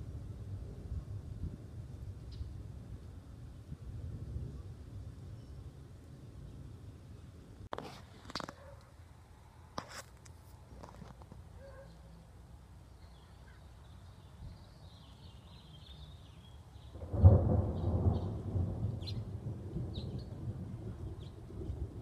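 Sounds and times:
thunder clap and rumble: 0:00.0 - 0:06.0, 0:16.9 - 0:22.0
small birds chirping: 0:11.6 - 0:17.1.

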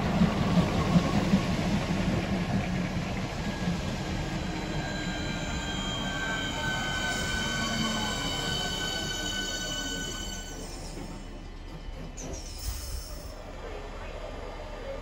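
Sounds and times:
train wheels rumbling on rails: 0:00.0 - 0:15.0
high-pitched train squeal: 0:03.3 - 0:13.7.

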